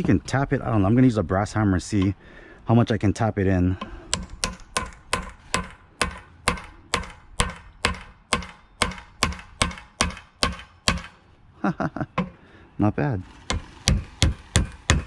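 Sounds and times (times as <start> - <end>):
hammer tapping on metal: 3.8 - 11.2, 13.5 - 15.0.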